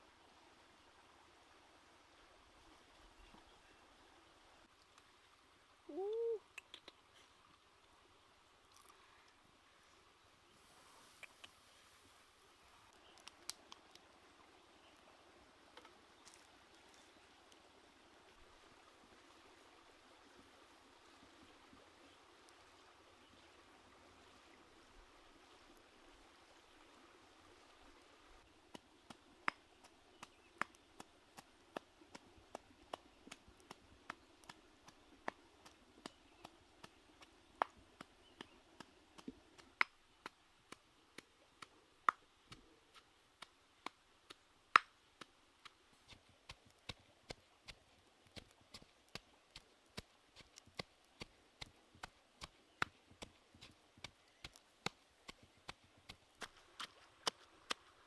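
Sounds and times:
fire crackling and popping: 12.9s - 14.1s.

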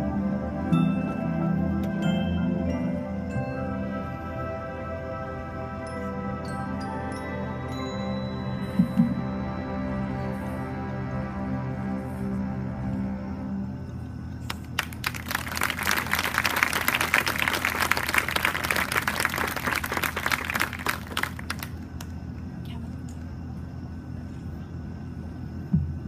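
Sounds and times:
steady low hum: 0.0s - 26.0s
crowd clapping: 14.5s - 22.1s.

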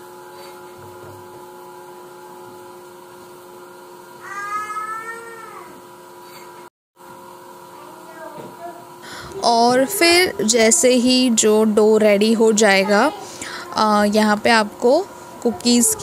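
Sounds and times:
faint steady hum: 7.3s - 16.0s.

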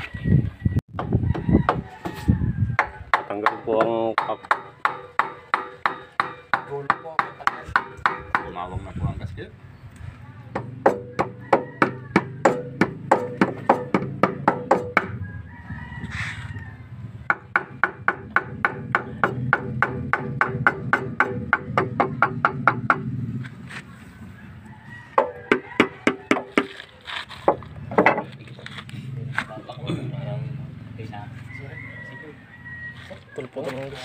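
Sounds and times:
hammer strikes on metal: 2.8s - 8.6s, 10.5s - 15.2s, 17.3s - 23.1s.

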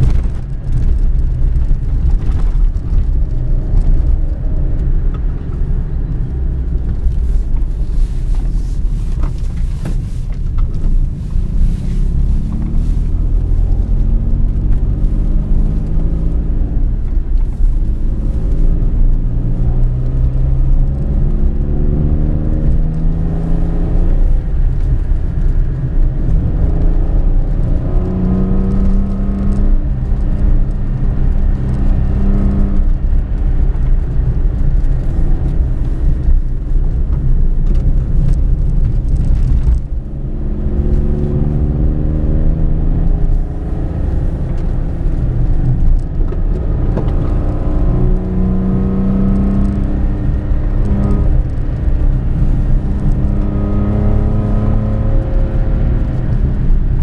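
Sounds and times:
car engine accelerating: 0.0s - 57.0s.

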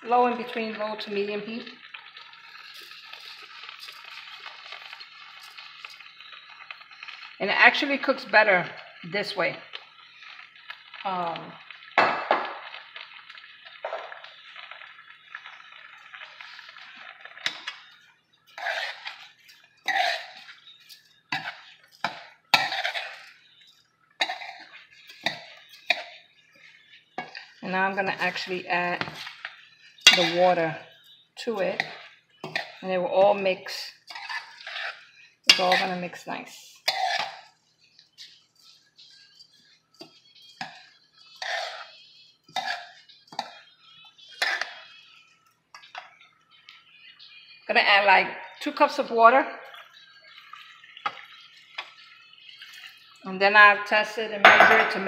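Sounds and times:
metal spoon scraping pot: 17.4s - 36.0s, 36.8s - 37.5s, 38.1s - 45.0s.

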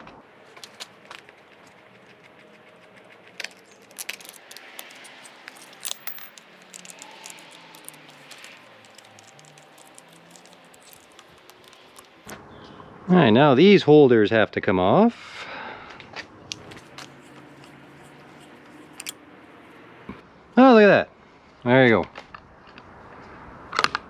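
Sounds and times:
tools clinking and rattling: 3.4s - 12.2s, 16.6s - 19.2s.

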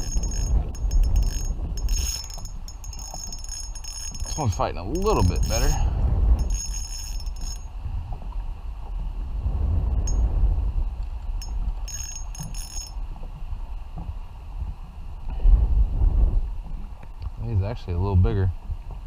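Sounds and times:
fishing reel drag buzzing: 0.0s - 7.7s, 11.4s - 13.0s
steady low rumble: 0.0s - 19.0s.

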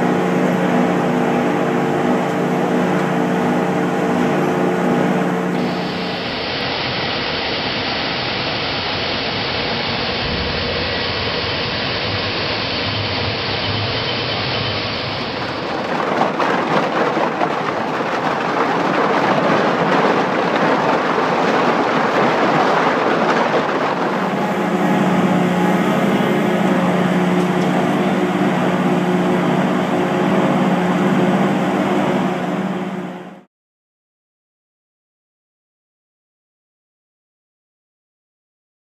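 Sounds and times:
shredder grinding plastic: 15.1s - 32.7s
machine drum low hum: 23.9s - 33.5s.

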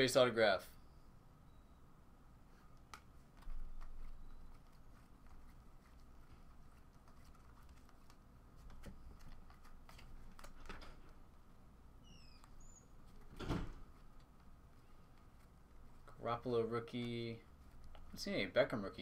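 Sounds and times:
trading cards being flipped: 2.5s - 11.2s.

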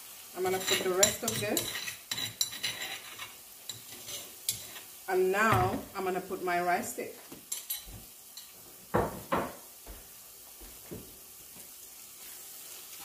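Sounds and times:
sauce sizzling in pot: 0.0s - 13.0s
kitchenware clunks: 8.9s - 9.6s.

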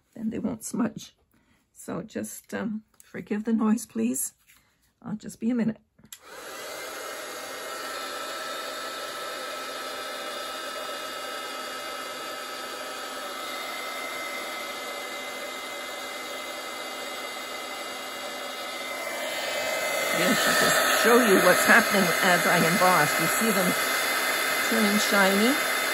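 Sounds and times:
heat tool blowing air: 6.2s - 25.9s.

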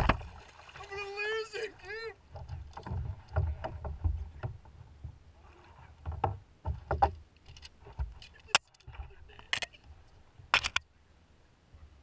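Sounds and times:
knocks and clicks on kayak: 6.0s - 9.7s.

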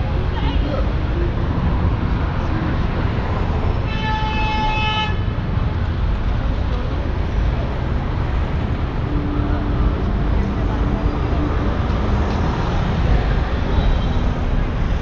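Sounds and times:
city street noise: 0.0s - 15.0s
vehicle horn toot: 3.9s - 5.3s.

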